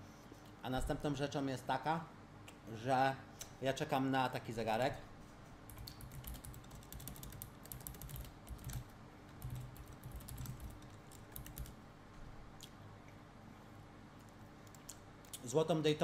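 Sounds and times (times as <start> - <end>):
keyboard typing: 5.7 - 11.8.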